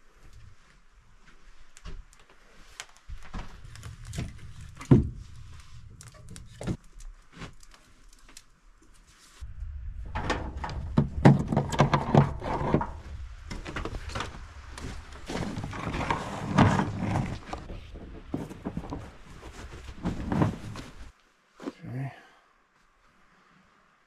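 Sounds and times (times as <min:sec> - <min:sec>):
low rumble: 0:09.4 - 0:21.1
extension cord rustling and dragging: 0:11.4 - 0:21.1.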